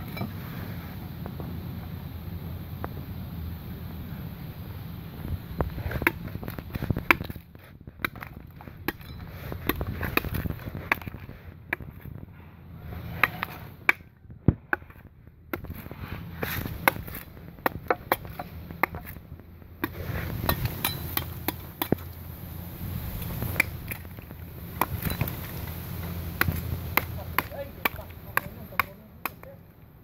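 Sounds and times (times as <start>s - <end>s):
knife chopping rotten wood: 5.8s - 12.0s, 13.1s - 19.2s, 19.8s - 22.1s, 23.4s - 29.6s.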